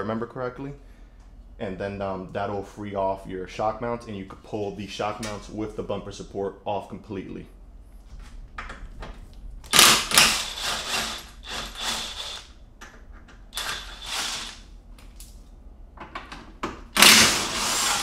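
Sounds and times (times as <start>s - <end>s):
cordless driver rattling: 17.0s - 18.0s.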